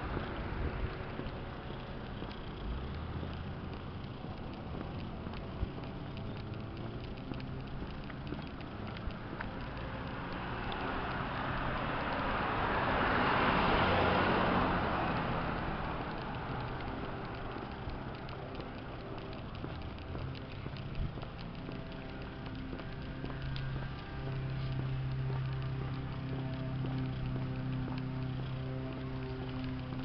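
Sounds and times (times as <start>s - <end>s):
outdoor background noise: 0.0s - 30.0s
car driving past: 8.3s - 30.0s.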